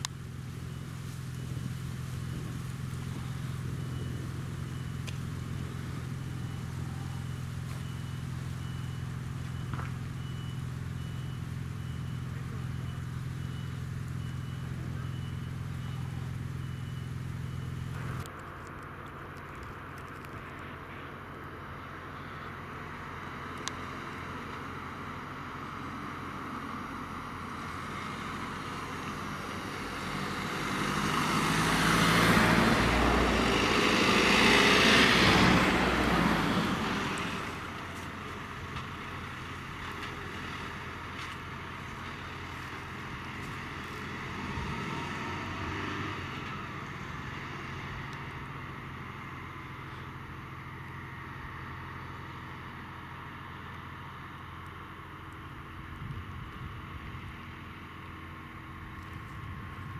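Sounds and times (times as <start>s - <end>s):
vans driving past: 0.0s - 59.9s
vehicle passing: 23.0s - 50.7s.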